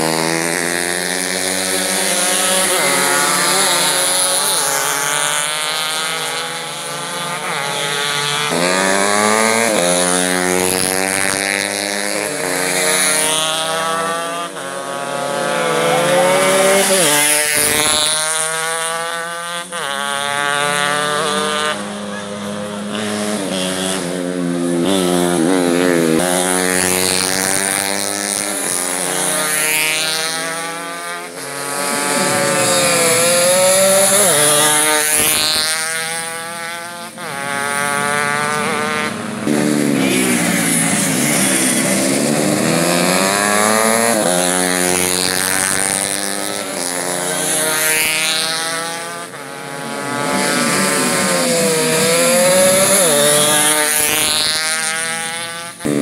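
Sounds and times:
small motorcycles revving and accelerating: 0:00.0 - 0:56.0.

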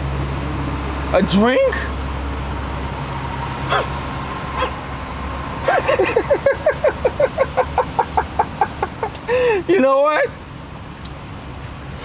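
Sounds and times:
animal calling: 0:03.7 - 0:04.0.

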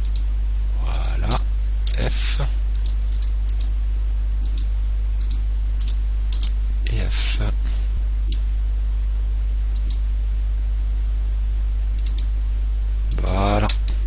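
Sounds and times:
low electrical hum: 0:00.0 - 0:14.0
mouse and keyboard clicks: 0:12.0 - 0:12.3.

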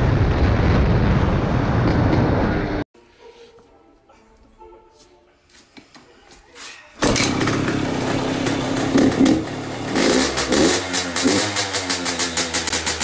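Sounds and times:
two-stroke engine revving and idling: 0:07.0 - 0:13.0.

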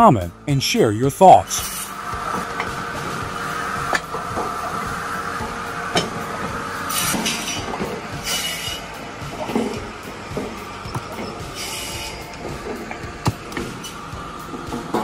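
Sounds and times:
firewood saw whine: 0:01.3 - 0:15.0.

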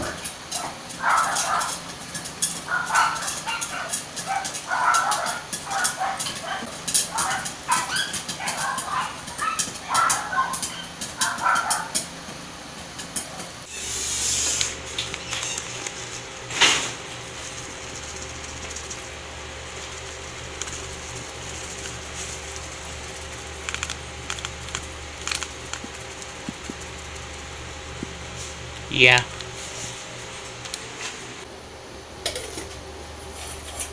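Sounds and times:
dog barking: 0:00.6 - 0:01.8, 0:02.6 - 0:12.0
steady low hum: 0:13.2 - 0:33.9.

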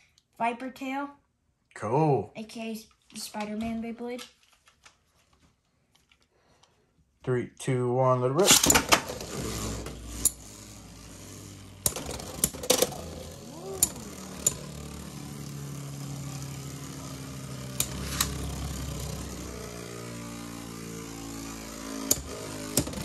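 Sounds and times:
spinning tops clacking together: 0:08.4 - 0:19.4
spinning tops whirring: 0:08.4 - 0:23.0.

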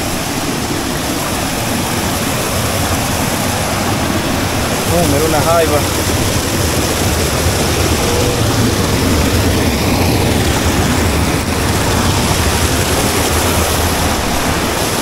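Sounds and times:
river water rushing: 0:00.0 - 0:15.0.

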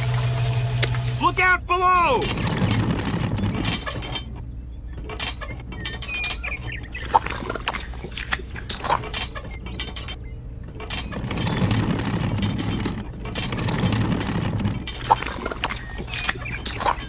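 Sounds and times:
toy wheelbarrow crunching on sand: 0:00.0 - 0:01.4.

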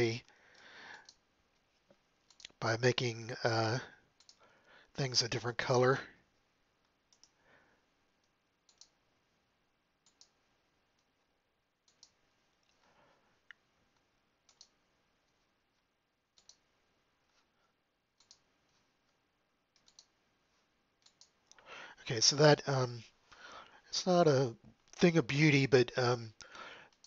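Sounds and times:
computer mouse clicks: 0:00.5 - 0:01.2, 0:01.9 - 0:02.6, 0:04.2 - 0:04.4, 0:06.8 - 0:07.4, 0:08.2 - 0:09.0, 0:10.0 - 0:11.2, 0:11.8 - 0:12.8, 0:14.4 - 0:15.4, 0:16.3 - 0:16.7, 0:18.2 - 0:18.8, 0:19.7 - 0:20.2, 0:21.0 - 0:21.6.

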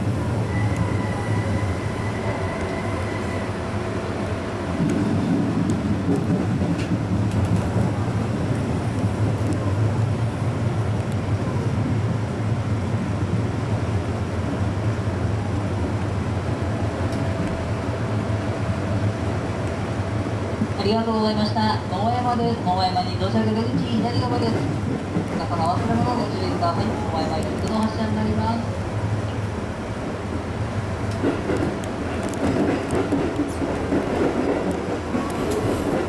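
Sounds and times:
train wheels and motors rumbling: 0:00.0 - 0:21.9, 0:23.4 - 0:36.0
light clicks from rails: 0:05.6 - 0:07.9, 0:08.5 - 0:09.7, 0:10.9 - 0:11.3, 0:17.0 - 0:17.6, 0:26.8 - 0:28.0, 0:31.0 - 0:36.0.

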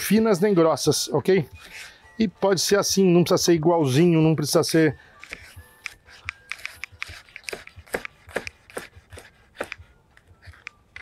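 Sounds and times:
knife slicing on wooden board: 0:05.3 - 0:10.8.

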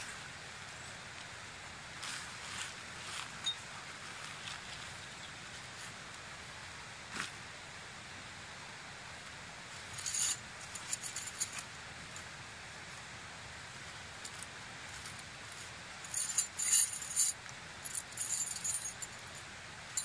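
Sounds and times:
faint steady hiss: 0:00.0 - 0:20.0
tent gear rustling: 0:09.7 - 0:12.3, 0:14.2 - 0:20.0
sharp clinks: 0:16.0 - 0:20.0.

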